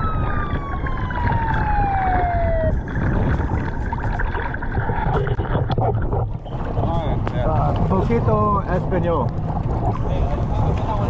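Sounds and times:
boat siren wailing: 0.0 - 4.8
water washing: 0.0 - 11.0
wind on microphone: 0.0 - 11.0.

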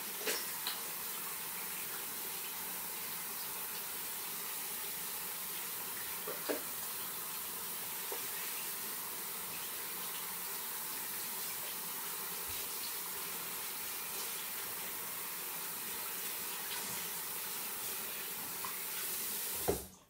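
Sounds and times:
water tap running: 0.0 - 20.0.

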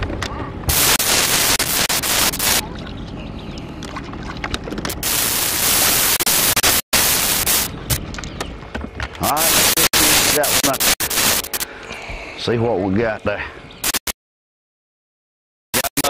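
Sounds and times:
loud static hiss: 0.6 - 2.6, 4.9 - 8.0, 9.2 - 11.7, 13.8 - 14.2, 15.8 - 16.0.

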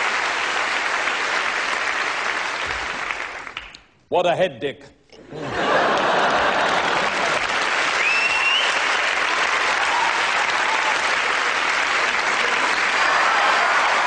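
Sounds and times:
audience applauding: 0.0 - 3.8, 5.5 - 14.0
rising whistle from crowd: 8.0 - 9.0.

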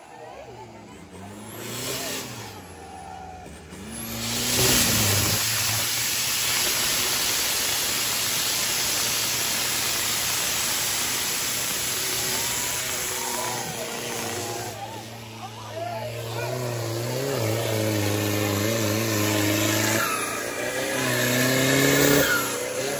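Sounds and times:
truck diesel engine revving: 0.0 - 22.9.

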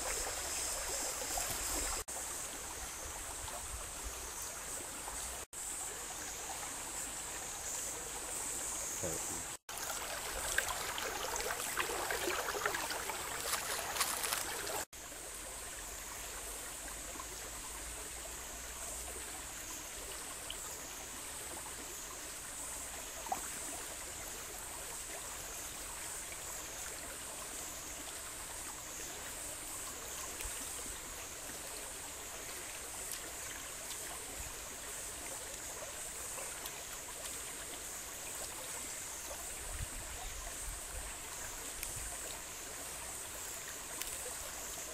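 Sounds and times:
high wavering hiss: 0.0 - 9.6
stream running over rocks: 0.0 - 44.9.

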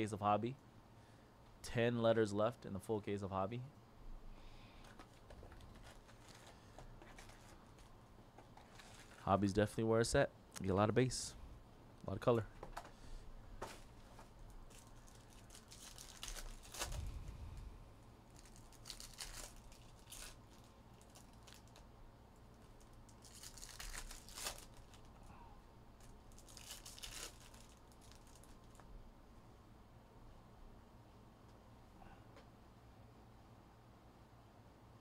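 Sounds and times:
foil wrappers tearing and crinkling: 8.6 - 9.3, 14.5 - 17.1, 18.3 - 21.9, 22.6 - 25.2, 26.0 - 28.8.

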